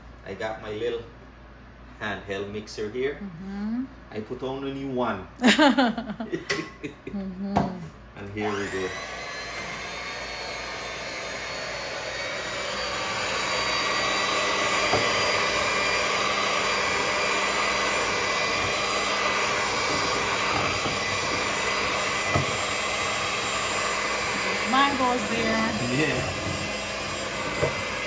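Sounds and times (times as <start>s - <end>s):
electric mixer whirring: 7.5s - 28.0s.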